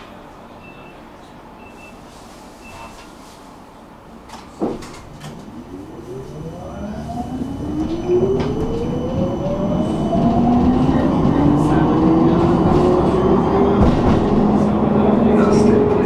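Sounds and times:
wheels rumbling on rails: 4.3 - 16.0
electric tram drive whine: 4.9 - 16.0.

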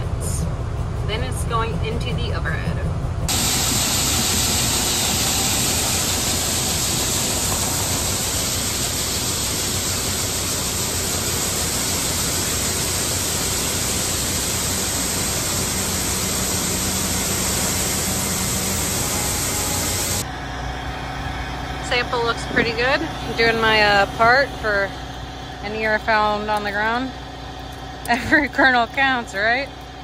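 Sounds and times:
low rumble of unloading machinery: 0.0 - 30.0
grain pouring with rushing hiss: 3.3 - 20.2.

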